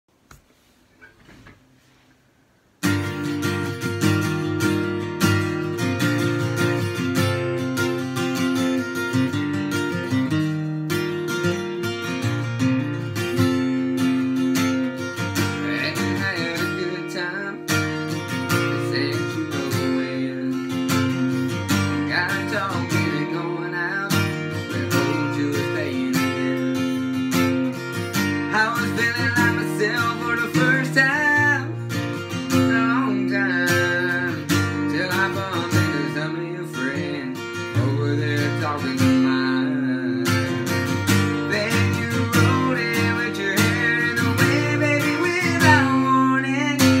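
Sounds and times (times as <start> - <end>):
acoustic guitar strumming: 2.8 - 47.0
young man singing: 13.0 - 47.0.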